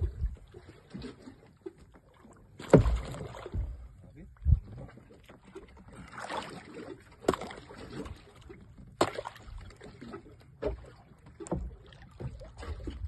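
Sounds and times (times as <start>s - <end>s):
water splashing at hull: 0.0s - 13.0s
sharp knocks on boat: 2.6s - 4.6s, 7.2s - 8.1s, 8.8s - 9.7s, 10.6s - 13.0s.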